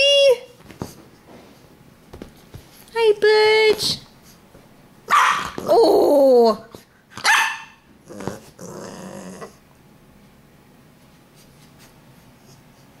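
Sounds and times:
puppy barking: 5.1s - 5.6s, 7.2s - 7.9s
puppy growling: 8.0s - 9.7s.

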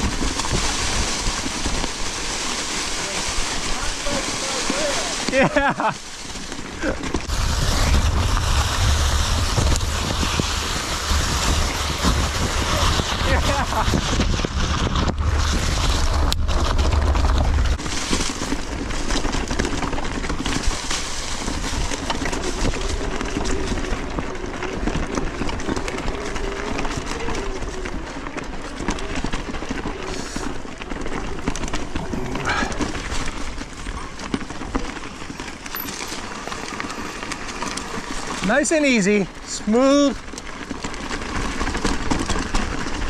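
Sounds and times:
bike rattling over bumps: 0.0s - 43.0s
bike tyres on dirt trail: 0.0s - 43.0s
wind buffeting microphone: 6.9s - 17.9s.

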